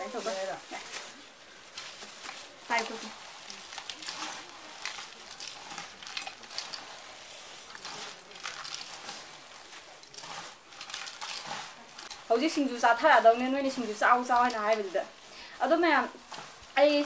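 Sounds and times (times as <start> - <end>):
plastic gloves crinkling: 0.0 - 17.0
shredded vegetables rustling: 0.0 - 17.0.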